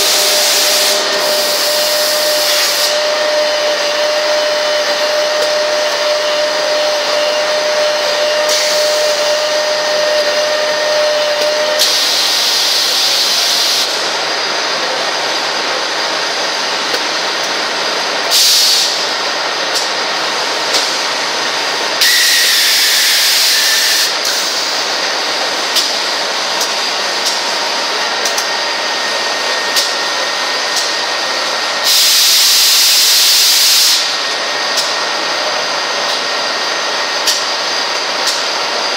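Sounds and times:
compressed air hiss bursts: 0.0 - 3.6, 11.6 - 14.0, 18.3 - 19.1, 22.0 - 24.8, 31.8 - 34.2
gear-cutting machines running: 0.0 - 38.9
steady machine whine: 0.0 - 38.9.

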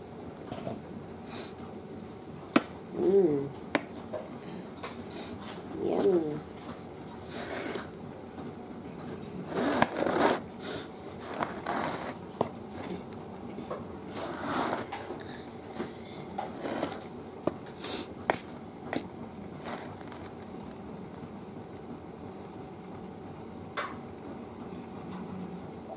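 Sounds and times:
knife scraping frosting: 7.3 - 7.8, 9.4 - 13.1, 14.0 - 15.0, 16.4 - 17.1, 17.8 - 19.0, 19.6 - 20.6.

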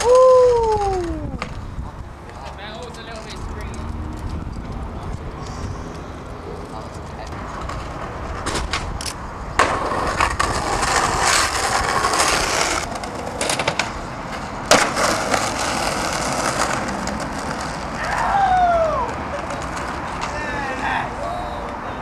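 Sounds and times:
skateboard clack: 0.0 - 5.4, 7.0 - 22.0
skateboard wheels rolling on tarmac: 0.0 - 22.0
skateboard landing slap: 14.6 - 15.6.

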